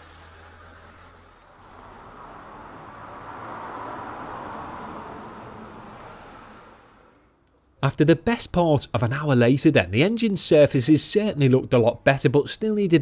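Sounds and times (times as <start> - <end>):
vehicle passing by: 0.0 - 7.4.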